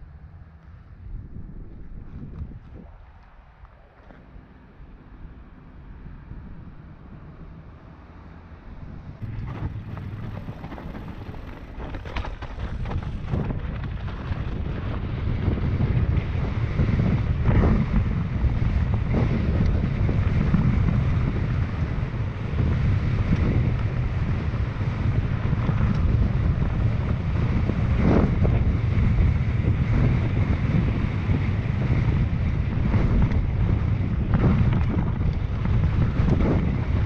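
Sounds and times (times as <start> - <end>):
wind buffeting microphone: 0.0 - 37.0
bike knocks and rattles: 9.2 - 16.1.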